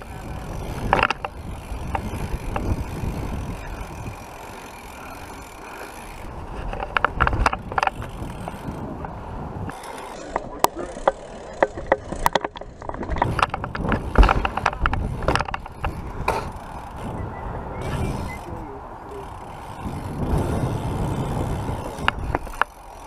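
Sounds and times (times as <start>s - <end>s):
camera housing rattling and clicking: 0.0s - 3.6s, 6.6s - 17.2s, 21.9s - 22.8s
wind noise: 0.0s - 22.7s
bike tyres rumbling on concrete: 0.0s - 23.0s.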